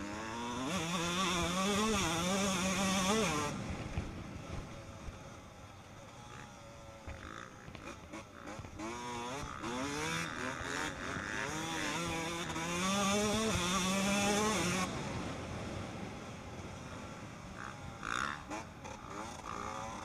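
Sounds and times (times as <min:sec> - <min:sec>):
motocross bike engine revving: 0:00.0 - 0:20.0.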